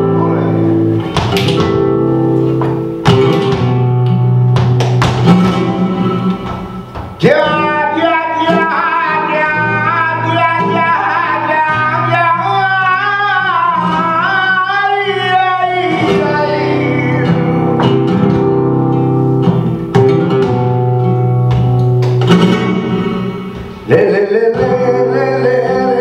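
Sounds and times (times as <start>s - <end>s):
flamenco guitar strummed chords: 0.0s - 26.0s
man singing flamenco: 7.1s - 18.8s, 22.4s - 26.0s.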